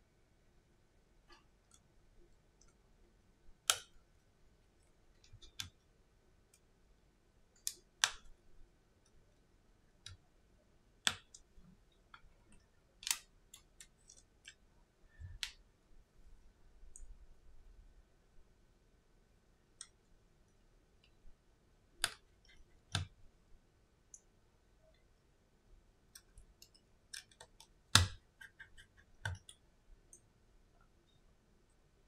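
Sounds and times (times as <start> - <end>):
small clicks and taps on phone: 5.2 - 5.9, 11.0 - 11.5, 22.0 - 23.2, 26.2 - 30.2.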